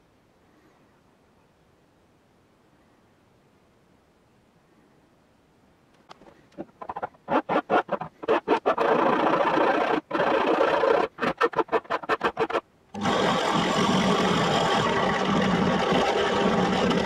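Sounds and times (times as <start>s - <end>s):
hand file rasping on metal: 6.6s - 17.0s
drill press drilling: 6.8s - 17.0s.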